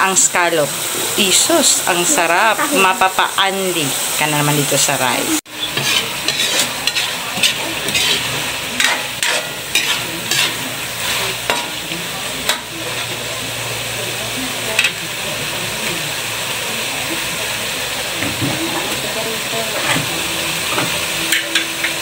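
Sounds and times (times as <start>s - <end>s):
food simmering and sizzling in pan: 0.0s - 22.0s
utensil scraping against pan: 5.5s - 13.3s.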